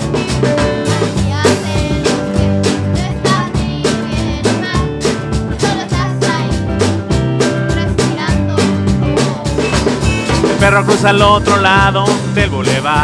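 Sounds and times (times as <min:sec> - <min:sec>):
bass guitar: 0:00.0 - 0:13.0
drum kit beat: 0:00.0 - 0:13.0
guitars playing: 0:00.0 - 0:13.0.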